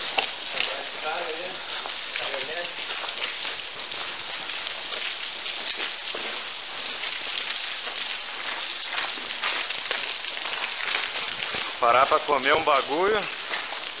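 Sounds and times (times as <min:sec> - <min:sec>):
water drops falling and spattering: 0:00.0 - 0:14.0.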